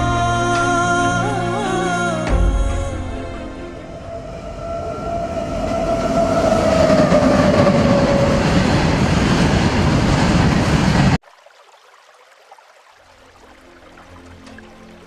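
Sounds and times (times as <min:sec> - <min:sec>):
train horn: 0:03.8 - 0:08.4
freight train rumble and clatter: 0:03.9 - 0:11.2.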